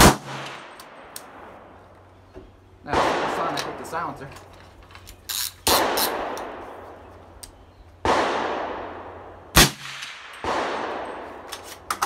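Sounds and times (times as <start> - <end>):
sharp gunshot crack: 0.0 - 0.7, 5.7 - 6.7, 8.0 - 11.2
suppressed gunshots with echoes: 0.0 - 1.8, 2.9 - 3.9, 5.7 - 7.1, 8.0 - 11.5.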